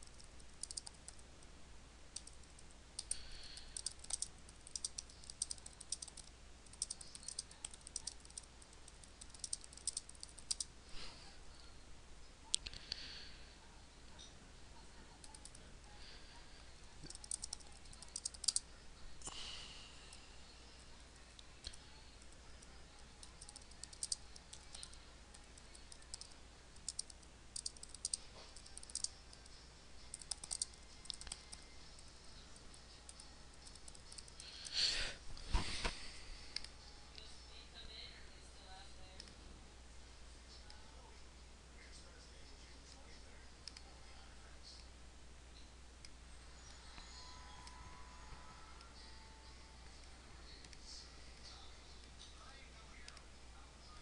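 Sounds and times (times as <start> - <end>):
mouse clicks: 0.0 - 1.2, 2.1 - 10.7, 17.0 - 18.6, 25.8 - 29.5, 30.1 - 31.6
keyboard typing: 0.0 - 1.3, 2.1 - 10.7, 15.2 - 15.6, 17.0 - 18.7, 23.1 - 32.1, 33.1 - 34.8.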